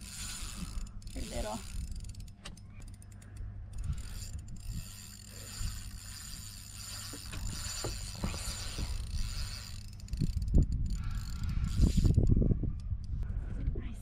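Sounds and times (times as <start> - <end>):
fishing reel clicking: 0.0 - 13.2
wind rumble on microphone: 3.4 - 6.0, 7.2 - 14.0.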